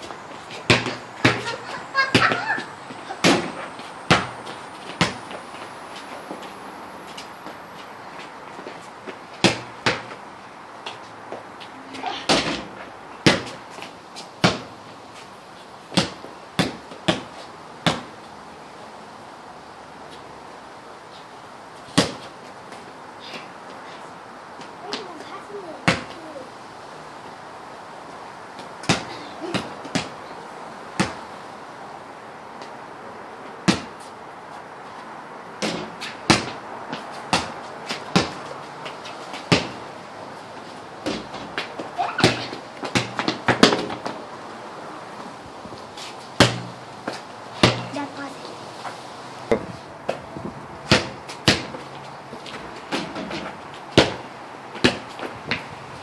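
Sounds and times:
basketball bouncing on concrete: 0:00.6 - 0:05.4, 0:09.4 - 0:10.2, 0:12.3 - 0:13.6, 0:14.4 - 0:14.8, 0:15.9 - 0:18.2, 0:22.0 - 0:22.3, 0:25.8 - 0:26.2, 0:28.6 - 0:30.2, 0:31.0 - 0:31.2, 0:33.6 - 0:34.0, 0:35.6 - 0:38.5, 0:39.3 - 0:39.8, 0:41.0 - 0:44.2, 0:46.4 - 0:48.1, 0:50.8 - 0:55.7.

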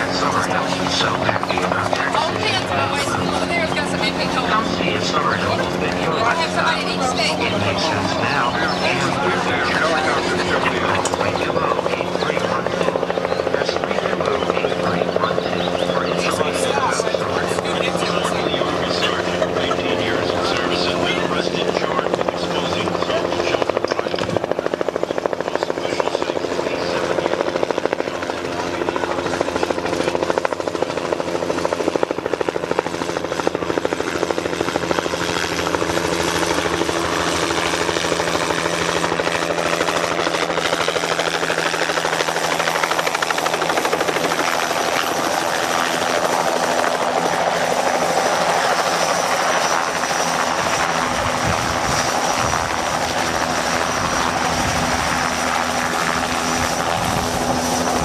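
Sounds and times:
helicopter turbine and rotor: 0:00.0 - 0:58.0.

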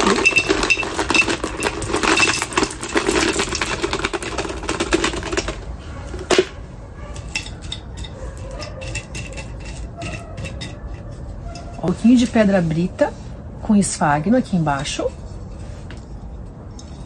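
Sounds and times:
pebbles pouring and rattling: 0:00.0 - 0:05.6.

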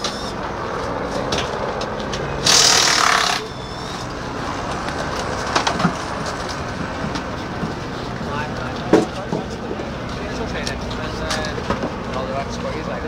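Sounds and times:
pneumatic air tool hissing: 0:00.0 - 0:00.4, 0:02.4 - 0:04.1
steady mechanical hum: 0:00.0 - 0:13.0.

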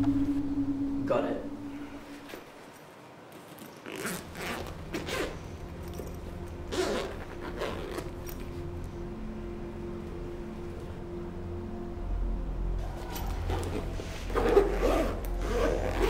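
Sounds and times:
steady low hum: 0:00.0 - 0:02.8, 0:07.3 - 0:16.0
zip pulled open: 0:03.8 - 0:05.4, 0:06.7 - 0:08.4, 0:13.0 - 0:16.0.

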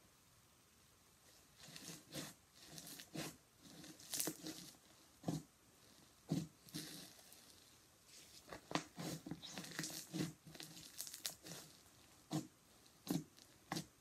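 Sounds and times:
slime crackling and tearing: 0:01.6 - 0:07.7, 0:08.5 - 0:13.8
slime popping: 0:08.6 - 0:13.8.

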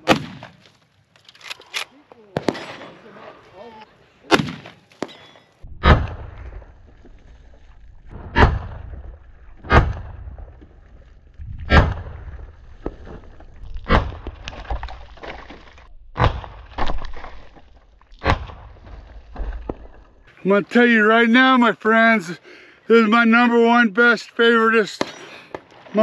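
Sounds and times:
rifle shots: 0:00.0 - 0:00.6, 0:02.4 - 0:03.1, 0:04.3 - 0:05.2
water jugs bursting and splashing: 0:08.0 - 0:20.2.

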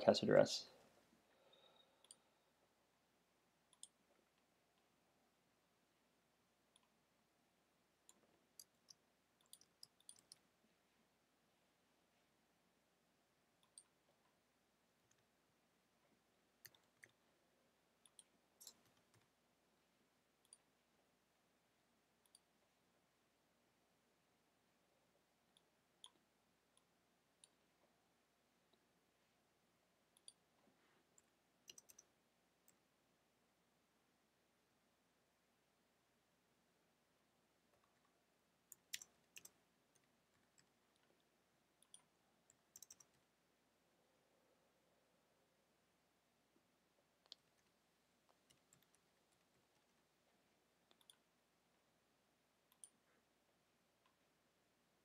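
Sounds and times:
mouse clicks: 0:01.5 - 0:02.2, 0:03.7 - 0:04.5, 0:08.0 - 0:10.5, 0:13.6 - 0:14.0, 0:16.6 - 0:17.2, 0:18.0 - 0:19.3, 0:30.2 - 0:30.4, 0:31.2 - 0:32.8, 0:38.7 - 0:43.2, 0:47.2 - 0:47.7, 0:50.9 - 0:51.3, 0:52.7 - 0:53.0
faint keyboard keystrokes: 0:42.8 - 0:43.2.

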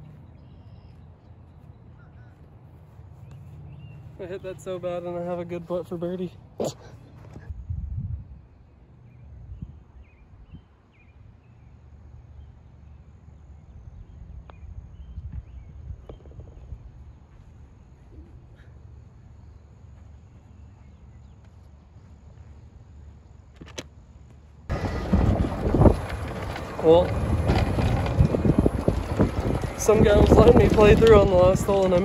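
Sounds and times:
wind rumble on microphone: 0:07.3 - 0:11.7, 0:13.5 - 0:18.6, 0:24.7 - 0:32.0.

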